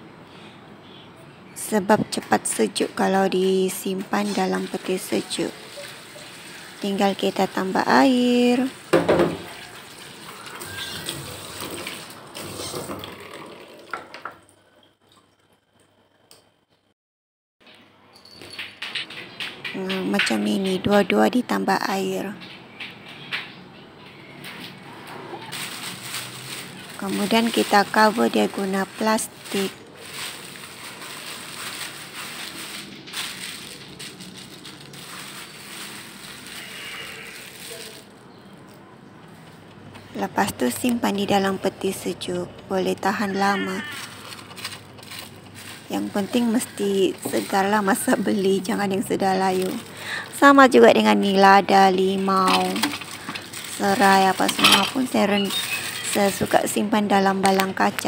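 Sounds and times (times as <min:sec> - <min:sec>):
plastic bag rustling and crinkling: 0:02.0 - 0:12.8, 0:24.7 - 0:39.6, 0:42.8 - 0:58.0.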